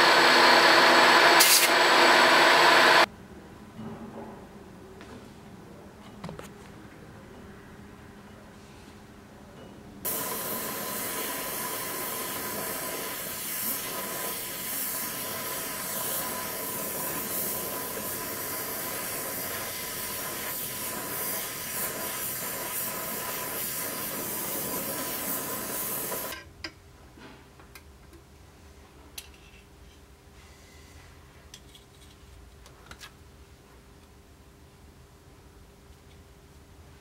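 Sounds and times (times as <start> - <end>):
gas torch hissing: 0.0 - 3.1, 10.1 - 26.4.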